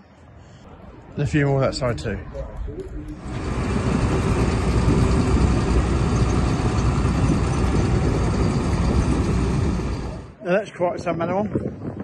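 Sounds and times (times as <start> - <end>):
diesel engine rumble: 3.1 - 10.4
tracks clattering: 3.2 - 10.3.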